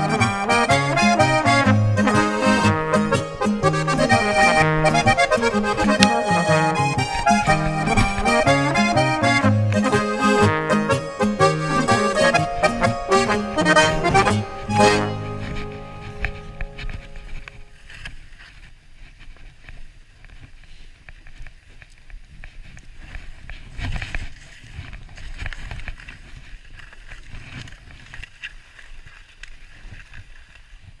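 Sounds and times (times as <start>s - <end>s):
wind rumbling on microphone: 6.9s - 9.1s, 12.2s - 31.0s.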